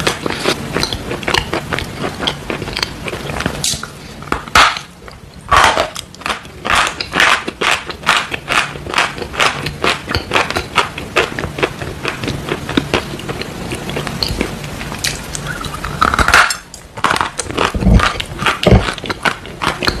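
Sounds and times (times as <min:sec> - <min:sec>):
chewing chalk crunching: 0:00.0 - 0:03.9, 0:17.0 - 0:20.0.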